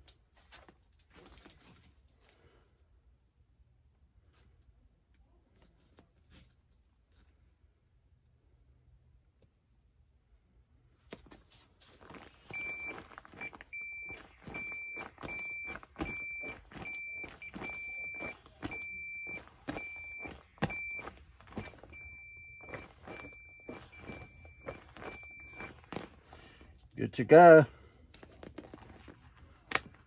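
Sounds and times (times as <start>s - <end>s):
multimeter beeps: 12.5s - 26.2s.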